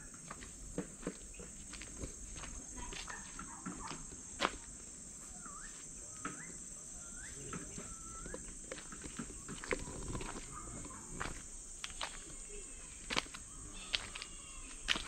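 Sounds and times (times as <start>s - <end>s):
high insect drone: 0.0s - 15.0s
bird whistles: 5.3s - 8.5s.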